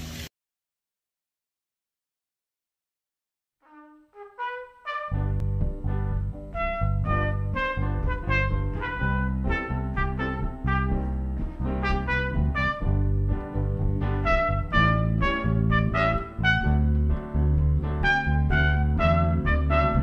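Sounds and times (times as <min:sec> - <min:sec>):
steady bass line: 0:05.1 - 0:20.0.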